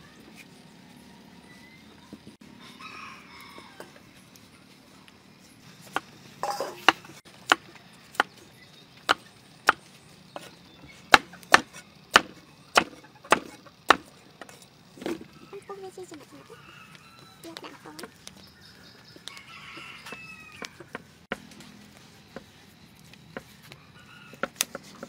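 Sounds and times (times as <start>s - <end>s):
knife chopping on wooden block: 11.1s - 14.1s.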